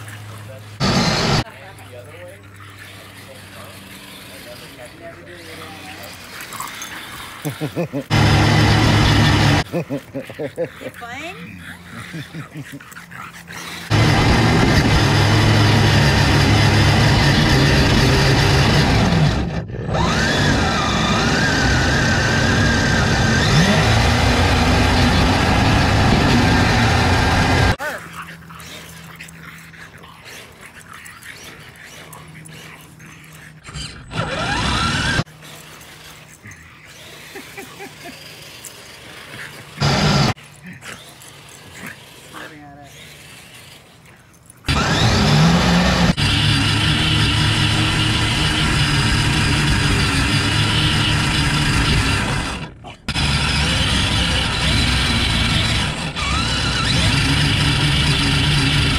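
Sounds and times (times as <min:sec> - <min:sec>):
electric motor whining: 0:00.8 - 0:01.5, 0:02.8 - 0:10.2, 0:13.4 - 0:30.0, 0:30.7 - 0:58.9
rising whine: 0:08.0 - 0:09.7, 0:13.9 - 0:27.8.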